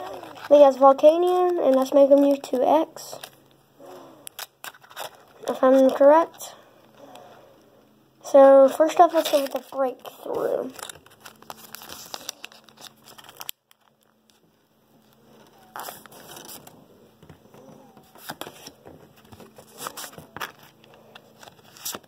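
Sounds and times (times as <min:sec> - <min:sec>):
cards being handled: 0:00.0 - 0:03.4, 0:04.2 - 0:06.2, 0:09.0 - 0:22.0
foil wrapper crinkling: 0:04.3 - 0:06.1, 0:09.1 - 0:14.4, 0:15.4 - 0:16.8.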